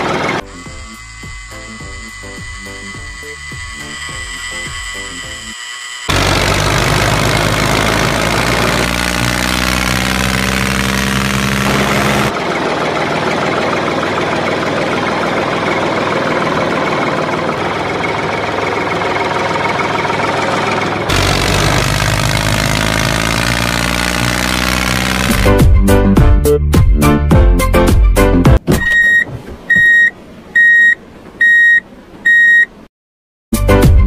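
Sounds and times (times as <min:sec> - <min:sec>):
tractor engine running: 0:00.0 - 0:25.8.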